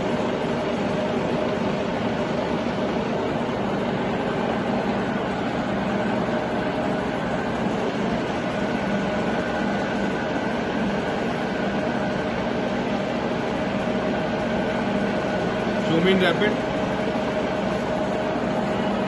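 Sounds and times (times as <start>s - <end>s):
milling machine motor whirring: 0.0s - 19.0s.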